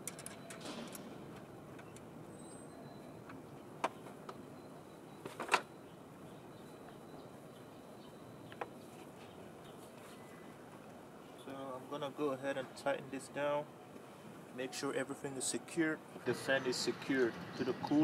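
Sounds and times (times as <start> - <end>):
metal clicks and taps: 0.0 - 2.1.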